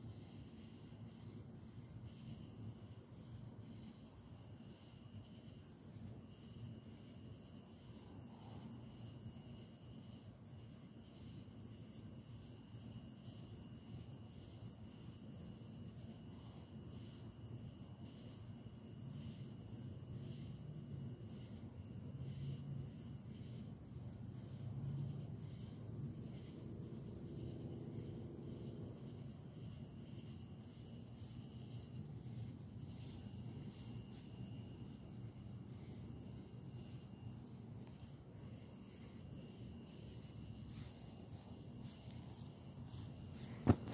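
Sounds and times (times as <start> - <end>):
crickets chirping: 0.0 - 43.9
faint low rumble: 24.4 - 43.9.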